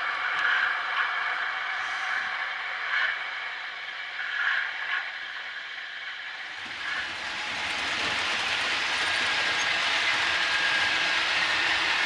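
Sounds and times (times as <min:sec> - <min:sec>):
model train wheels clattering: 0:06.6 - 0:12.0.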